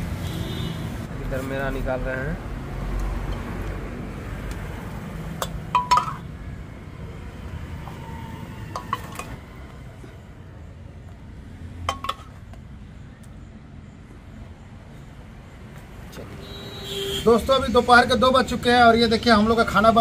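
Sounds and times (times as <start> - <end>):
serving spoon clinking against plates: 5.4 - 6.3.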